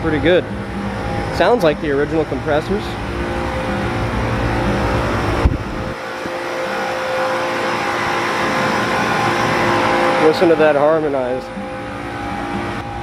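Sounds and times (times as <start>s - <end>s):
low rumble: 0.0s - 6.4s
air conditioner units humming: 0.0s - 13.0s.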